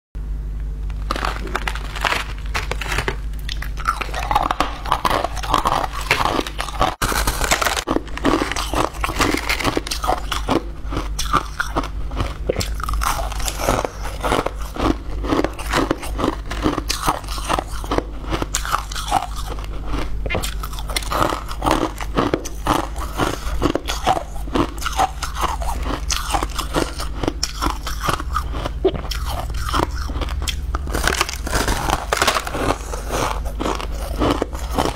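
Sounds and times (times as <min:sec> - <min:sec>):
steady low hum: 0:00.2 - 0:34.9
crushed ice being chewed: 0:00.9 - 0:34.9.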